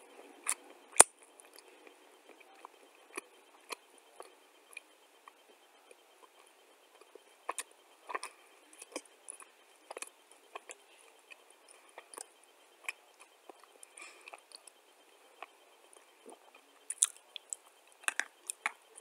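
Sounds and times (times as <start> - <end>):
clay being chewed: 0.3 - 14.8.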